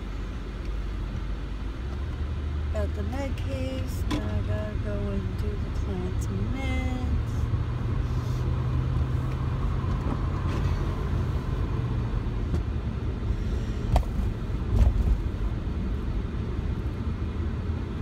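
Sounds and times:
engine and road rumble: 0:00.0 - 0:18.0.

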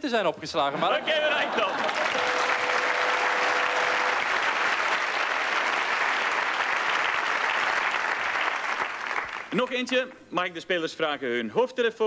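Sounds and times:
audience applauding: 0:01.1 - 0:09.8.

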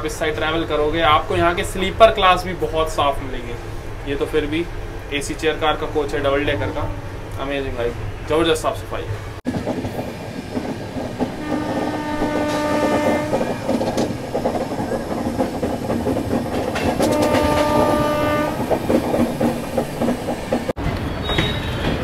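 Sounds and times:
moving train rumble: 0:00.0 - 0:22.0
train horn blasts: 0:11.4 - 0:13.8, 0:17.0 - 0:18.8.

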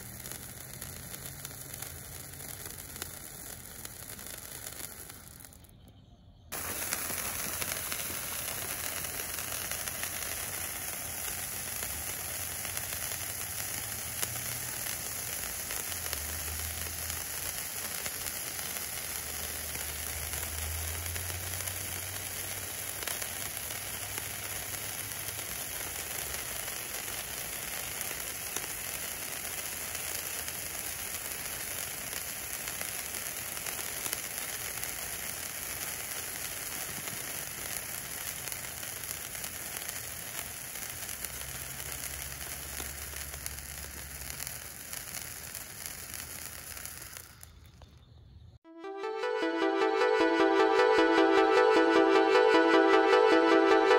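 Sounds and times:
sparks hissing: 0:00.0 - 0:05.9, 0:06.5 - 0:48.0.

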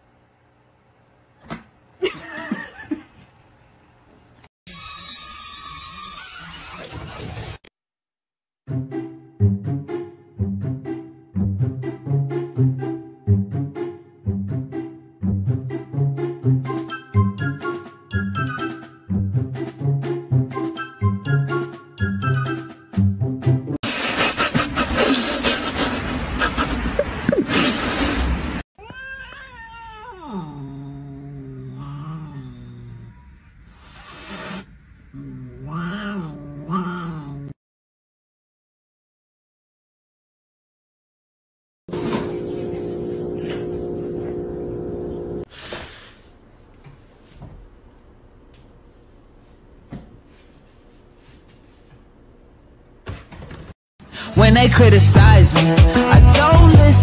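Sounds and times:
cat squeals: 0:04.7 - 0:07.2, 0:28.8 - 0:30.5, 0:42.6 - 0:45.1
cat yowling into a growl: 0:28.8 - 0:33.4, 0:35.2 - 0:37.5.

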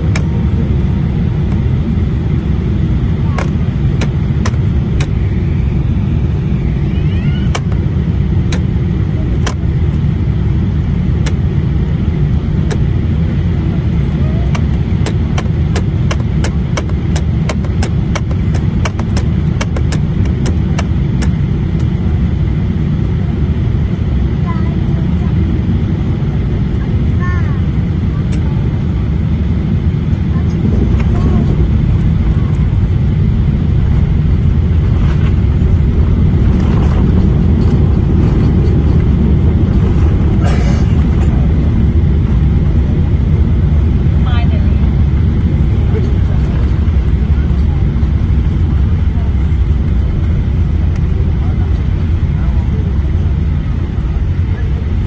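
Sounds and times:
jet engines rumbling: 0:00.0 - 0:55.0
rushing air: 0:29.3 - 0:44.3.

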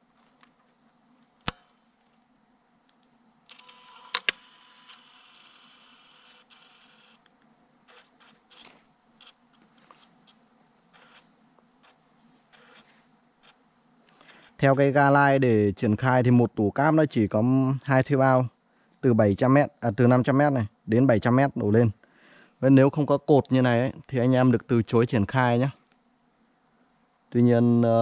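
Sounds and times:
crickets chirring: 0:00.0 - 0:28.0
sharp clicks of splicer: 0:01.4 - 0:01.7, 0:02.9 - 0:04.4.

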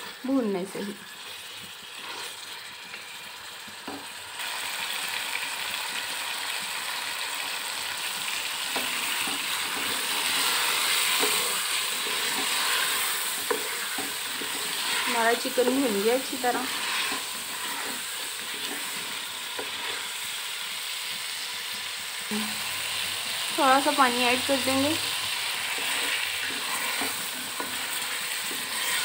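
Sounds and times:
chicken sizzling in a pot: 0:00.0 - 0:29.0
wooden spatula scraping: 0:01.9 - 0:02.5, 0:08.7 - 0:20.2, 0:23.6 - 0:29.0.

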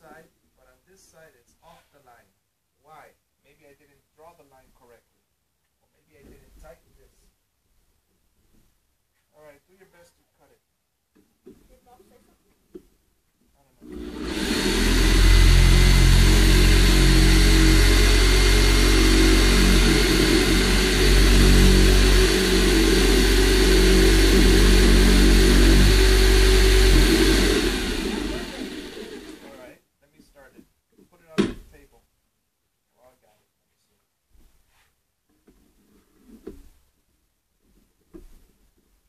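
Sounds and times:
electric jigsaw sawing board: 0:13.8 - 0:29.7.

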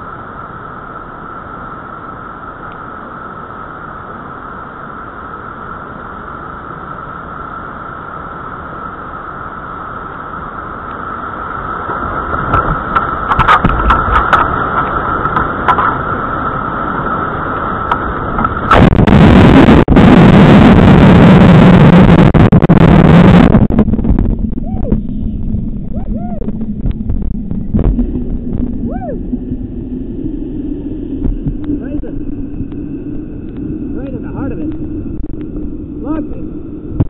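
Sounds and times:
loud distorted whitewater wash: 0:00.0 - 0:37.0
steady high tone: 0:24.5 - 0:36.6.

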